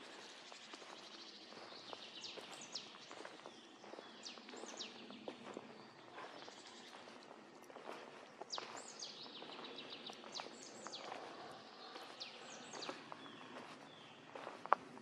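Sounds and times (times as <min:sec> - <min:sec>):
birds singing and chirping: 0:00.0 - 0:14.7.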